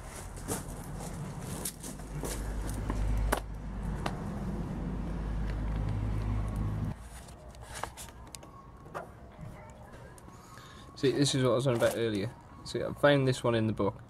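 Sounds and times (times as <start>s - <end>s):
engine-like rumble: 0.0s - 7.0s.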